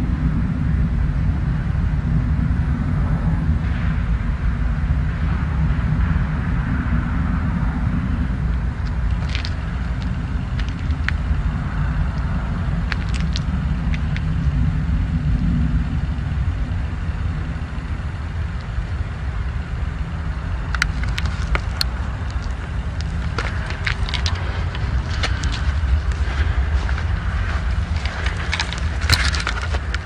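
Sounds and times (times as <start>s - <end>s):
low roar from sky: 0.0s - 30.0s.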